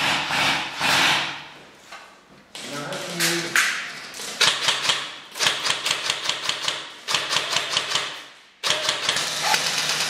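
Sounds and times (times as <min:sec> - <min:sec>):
airsoft rifle firing bursts: 0:04.4 - 0:10.0.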